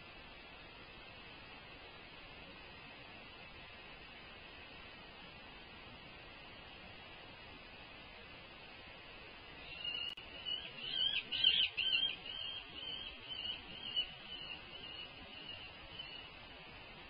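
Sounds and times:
falcon calling: 9.6 - 16.2.

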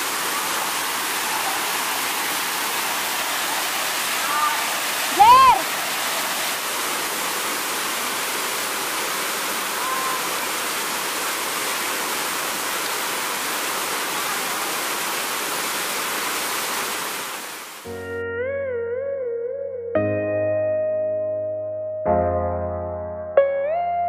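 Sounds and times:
waterfall rushing: 0.0 - 17.9.

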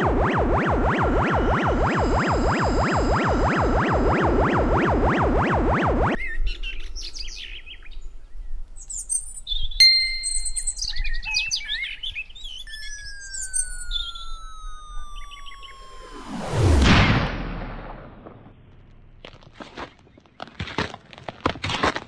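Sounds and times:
electronic music with sweeping tones: 0.0 - 6.2, 12.6 - 17.0
long falling whistle: 0.0 - 6.2, 12.6 - 17.0
birds chirping and singing: 6.2 - 16.0.

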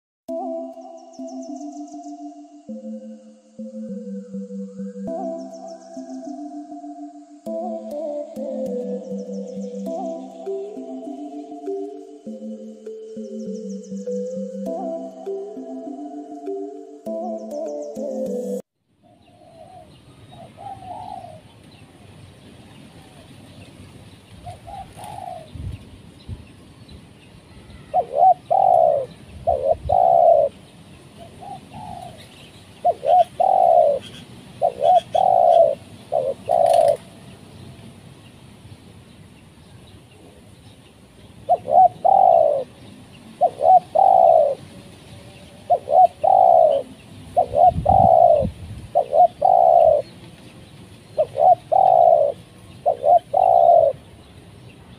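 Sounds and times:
dove cooing: 19.4 - 21.5, 24.4 - 25.5, 27.8 - 30.6, 31.2 - 37.2, 41.5 - 50.2, 51.2 - 54.1.

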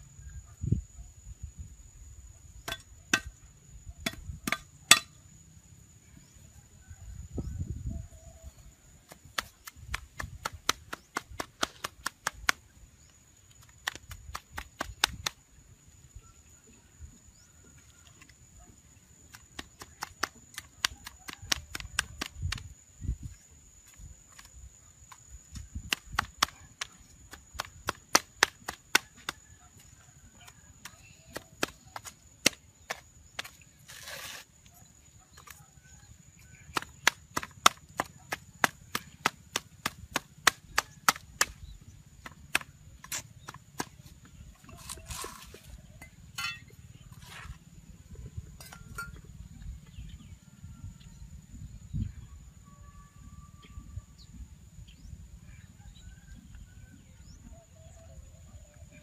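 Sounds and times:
blade chopping wood: 9.1 - 12.6, 13.8 - 15.4, 25.8 - 29.4, 36.7 - 41.6.

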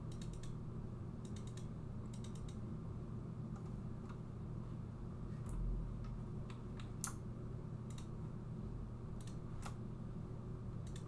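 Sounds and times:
steady low hum: 0.0 - 11.0
mouse and keyboard clicks: 0.1 - 0.6, 1.2 - 2.6.

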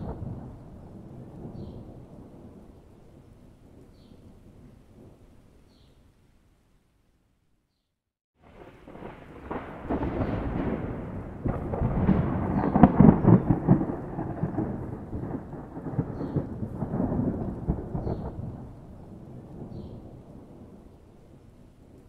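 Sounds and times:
thunder rolling: 0.0 - 3.0, 8.4 - 21.0.

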